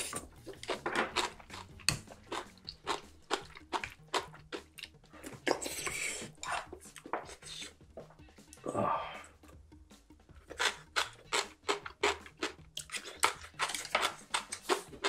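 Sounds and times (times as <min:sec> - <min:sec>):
man chewing and slurping: 0:00.0 - 0:09.3, 0:10.4 - 0:15.0
wet mouth clicks: 0:03.4 - 0:07.7.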